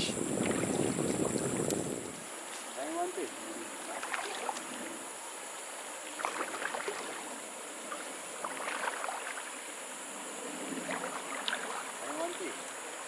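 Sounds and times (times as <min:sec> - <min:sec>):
stream rushing: 0:00.0 - 0:13.0
water splashing around legs: 0:00.3 - 0:03.2, 0:03.8 - 0:05.0, 0:06.1 - 0:09.6, 0:10.8 - 0:12.7.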